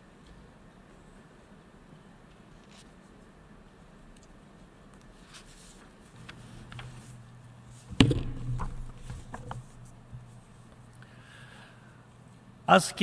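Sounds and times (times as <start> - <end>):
faint steady hum: 0.0 - 13.0
knock on lectern microphone: 7.9 - 9.5.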